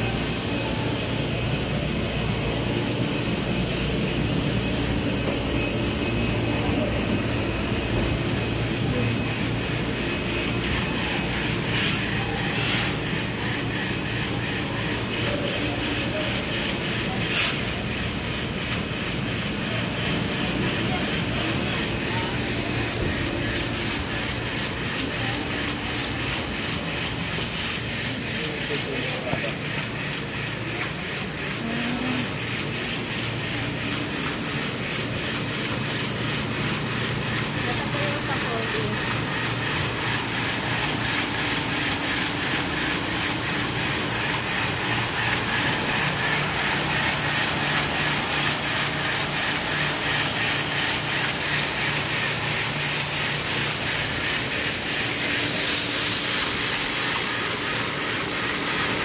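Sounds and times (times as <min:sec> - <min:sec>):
printing machines hum and clatter: 0:00.0 - 0:59.0
short hissing bursts: 0:39.0 - 0:59.0
faint regular clatter: 0:40.6 - 0:52.2.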